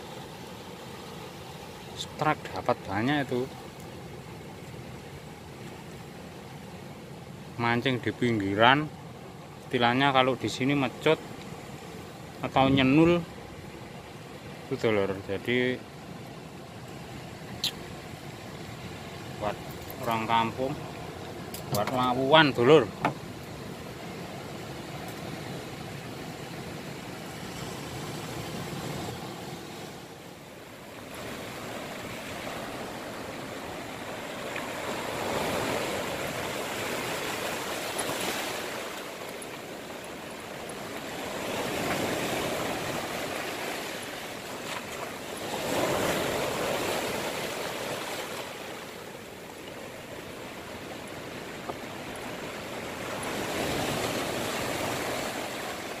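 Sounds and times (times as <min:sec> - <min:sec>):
waves breaking on rocky shore: 0:00.0 - 0:56.0.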